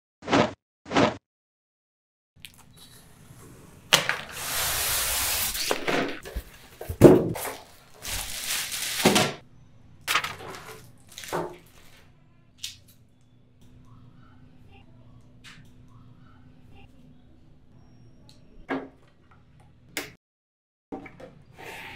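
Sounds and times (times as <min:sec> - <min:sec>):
packing tape tearing: 0:04.0 - 0:06.3, 0:07.4 - 0:09.4.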